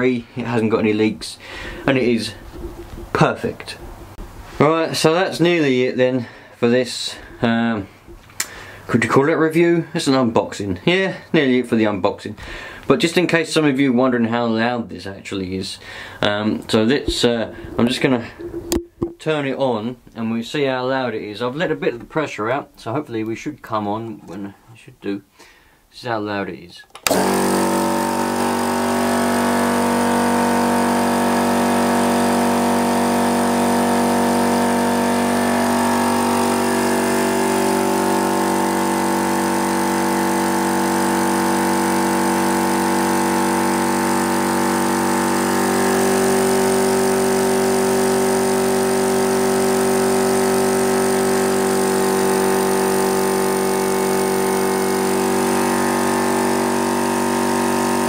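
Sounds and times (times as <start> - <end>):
air compressor running: 1.4 - 3.2, 27.0 - 58.0.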